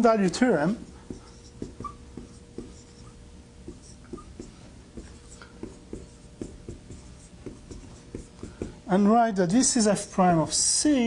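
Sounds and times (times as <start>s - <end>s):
pen writing taps and scratches: 0.8s - 8.8s.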